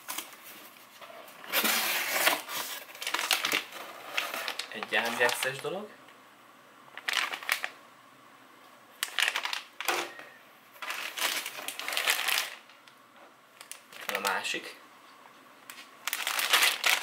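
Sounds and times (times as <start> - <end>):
plastic bags crinkling: 1.5 - 5.8, 7.0 - 7.8, 9.0 - 10.1, 10.8 - 12.9, 13.6 - 14.6, 15.7 - 17.0.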